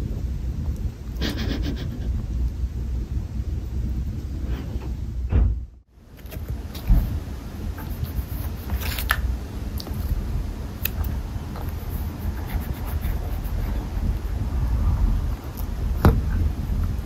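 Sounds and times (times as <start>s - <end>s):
steady low rumble: 0.0s - 17.0s
kittens batting toy clicks and rustles: 6.1s - 10.2s.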